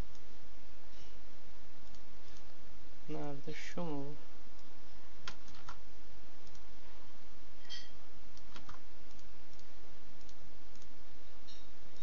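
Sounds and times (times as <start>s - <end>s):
steady low hum: 0.0s - 12.0s
mouse and keyboard clicks: 5.2s - 5.8s, 8.4s - 10.9s.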